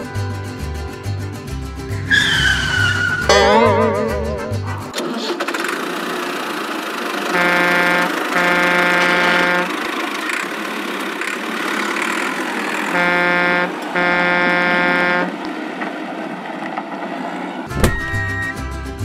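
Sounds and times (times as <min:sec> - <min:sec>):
engine rumble: 0:00.0 - 0:19.0
vehicle horn honking: 0:03.0 - 0:04.0, 0:07.2 - 0:09.8, 0:12.8 - 0:15.4.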